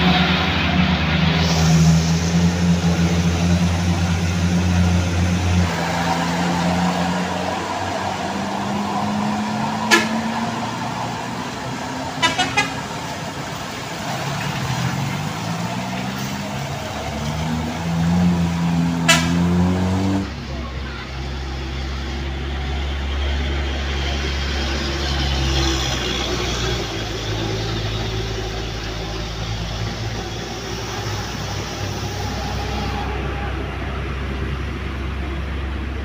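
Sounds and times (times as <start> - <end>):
truck and motorcycle engines revving: 0.0 - 36.0
horn toots: 9.6 - 10.6, 12.1 - 13.1, 18.8 - 20.0.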